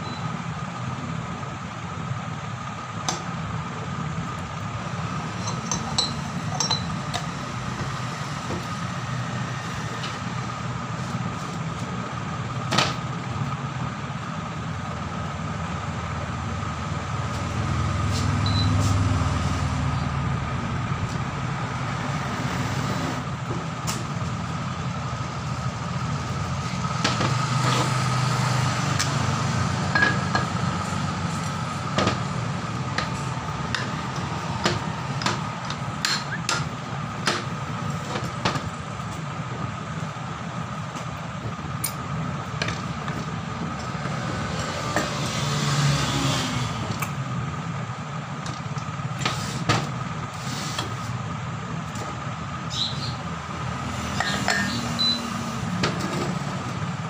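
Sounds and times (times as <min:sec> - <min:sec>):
thin high tone: 0:17.8 - 0:20.2.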